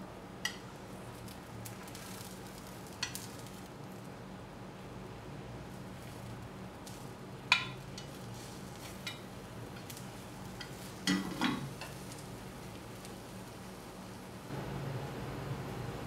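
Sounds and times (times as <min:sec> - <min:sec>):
omelette sizzling in a pan: 0:00.4 - 0:04.3, 0:05.6 - 0:14.6
pan knocking on grate: 0:10.6 - 0:12.0.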